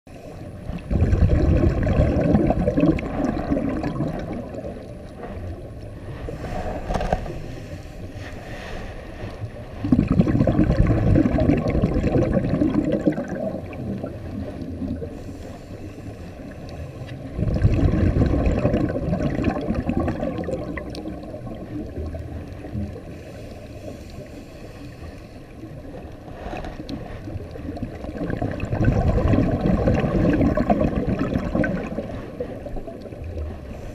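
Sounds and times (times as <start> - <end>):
regulator exhaust bubbling underwater: 0.5 - 6.3, 9.6 - 15.4, 16.2 - 23.1, 25.4 - 33.9.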